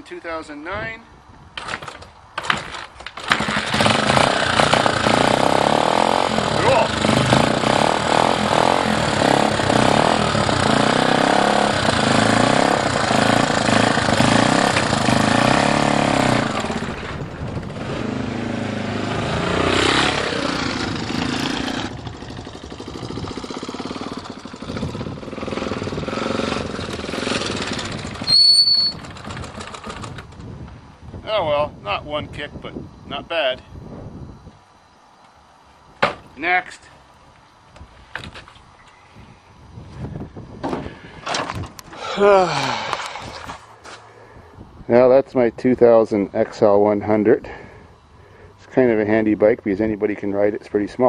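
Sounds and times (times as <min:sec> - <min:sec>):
motorcycle engine revving and idling: 0:03.2 - 0:30.6.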